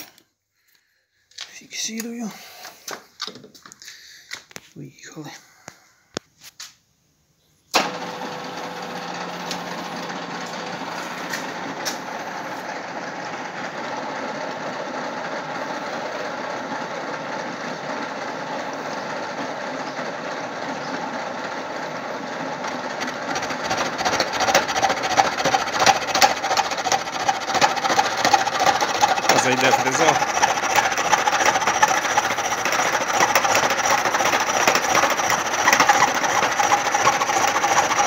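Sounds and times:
milling machine spindle whirring: 7.8 - 38.0.

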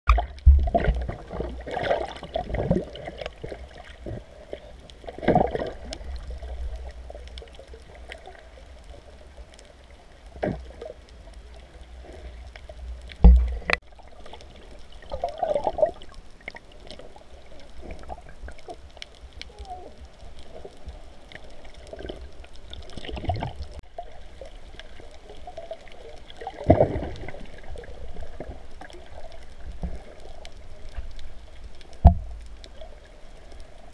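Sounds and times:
underwater knocks: 0.1 - 1.3, 13.2 - 13.8, 32.0 - 32.4
muffled underwater water gurgling: 0.1 - 33.9.

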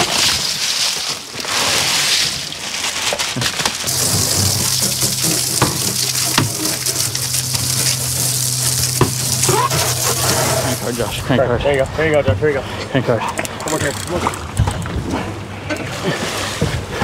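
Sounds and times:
hose spraying water on deck: 3.8 - 11.2
low hum: 3.8 - 12.9
ice cubes poured: 3.9 - 11.1.

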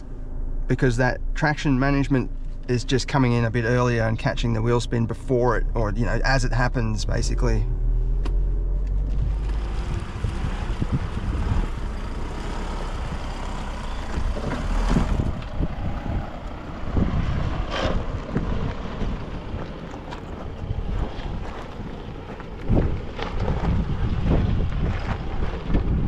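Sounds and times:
pickup engine rumble: 0.0 - 26.0
wind on microphone: 7.2 - 26.0.

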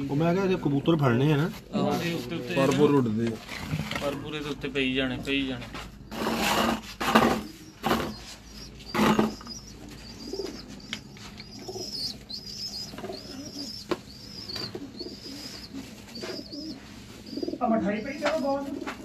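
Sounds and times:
pigeons cooing: 5.9 - 19.0
high chirp: 7.5 - 18.1.

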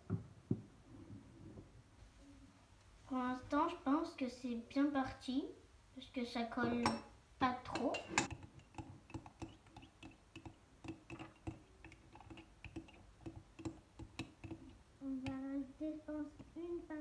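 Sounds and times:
spoon scraping ceramic mug: 8.0 - 14.8.

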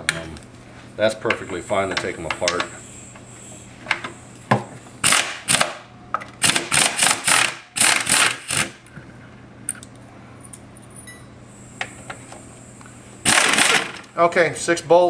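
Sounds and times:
impact wrench bursts: 5.0 - 8.8, 13.2 - 14.1.

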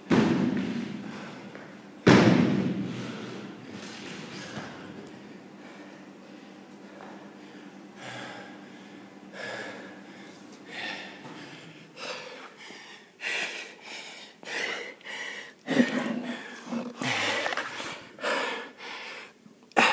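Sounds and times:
man breathing hard and gasping: 2.8 - 3.7, 5.6 - 19.9.

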